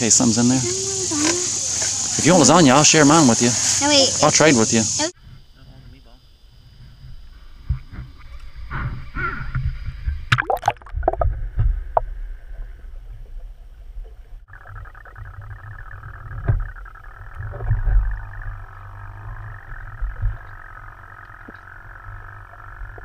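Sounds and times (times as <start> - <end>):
muffled underwater hiss and rumble: 0.0 - 10.4, 11.0 - 23.0
water splashing: 10.3 - 11.3.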